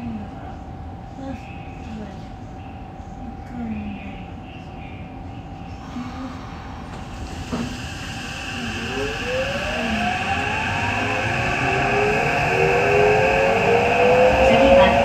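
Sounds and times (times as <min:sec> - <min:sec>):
train running noise: 0:05.7 - 0:15.0
subway train knock: 0:06.3 - 0:15.0
traction motor whine rising: 0:06.8 - 0:15.0.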